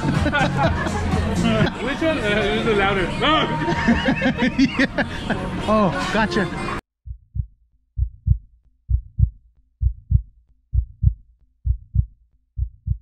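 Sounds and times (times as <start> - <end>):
heartbeat thuds: 7.0 - 13.0.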